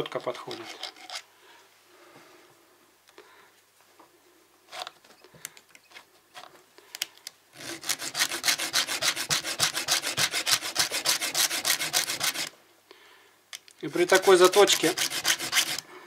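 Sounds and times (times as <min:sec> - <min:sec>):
file rasping on chainsaw chain: 0:07.6 - 0:12.5, 0:13.9 - 0:15.9.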